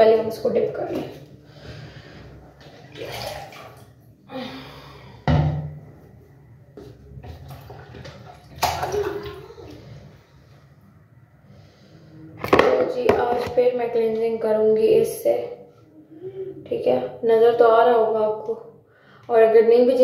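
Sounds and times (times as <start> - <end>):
water splashing: 2.7 - 4.0, 7.3 - 10.1.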